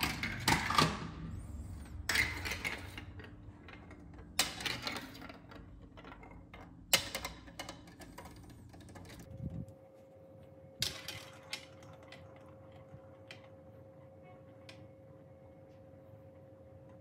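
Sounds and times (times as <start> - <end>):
plastic balls rolling on track: 0.0 - 9.3, 10.8 - 14.0
plastic balls clattering: 1.9 - 9.4, 10.8 - 13.6.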